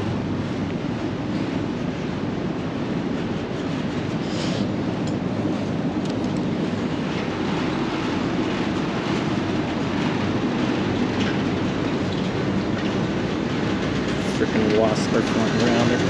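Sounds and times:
air conditioning units running: 0.0 - 16.0.

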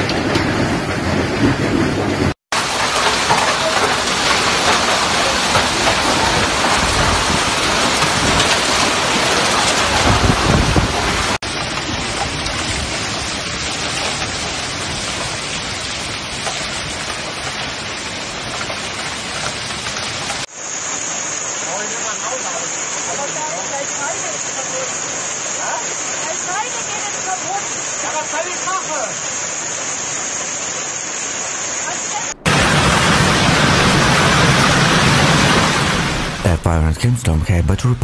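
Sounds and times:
hail pattering: 0.0 - 29.8
heavy hail and rain: 0.0 - 38.0.

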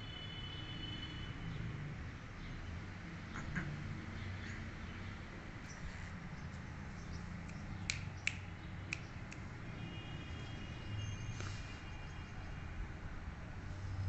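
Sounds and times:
sharp clicks: 7.4 - 9.5.

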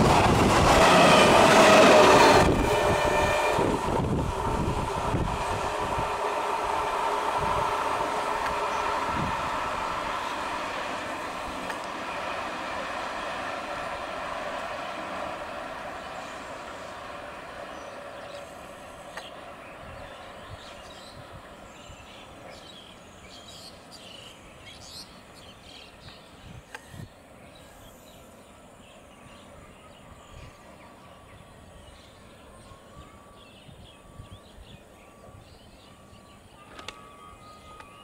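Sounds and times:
distant train rumble: 0.0 - 38.0
birds chirping: 14.4 - 38.0.

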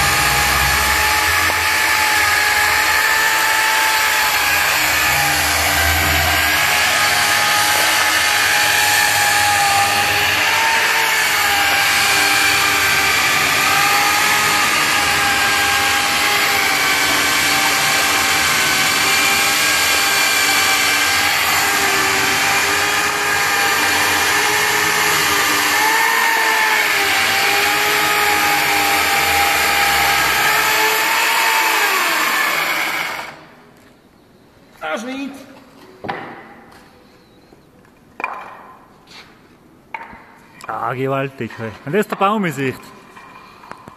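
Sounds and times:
electric motor whining: 0.0 - 33.4.

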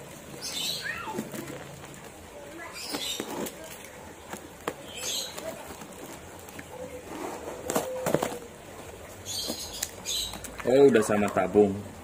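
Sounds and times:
cardboard and tape tearing: 2.8 - 8.5.

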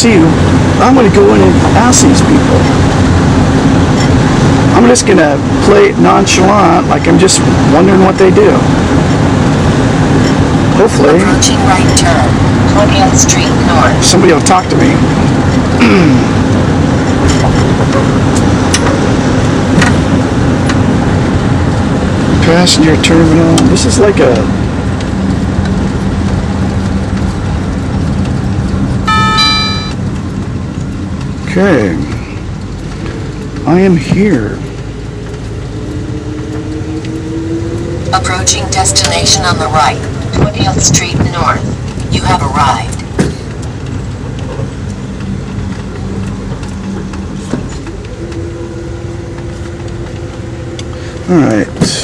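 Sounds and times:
car road and engine rumble: 0.0 - 52.0
two-note electronic chime: 29.0 - 30.0
humming tone: 29.0 - 30.1, 46.1 - 51.5.

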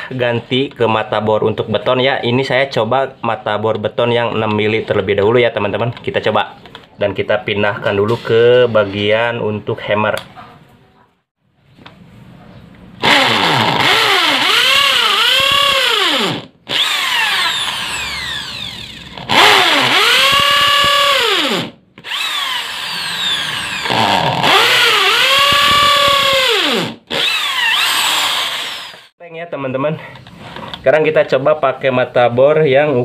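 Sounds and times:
impact drill boring into concrete: 13.0 - 29.1.

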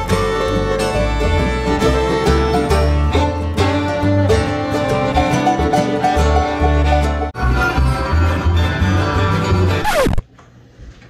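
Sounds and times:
fiddle: 0.0 - 10.1
acoustic guitar: 0.0 - 10.2
upright bass: 0.0 - 10.2.

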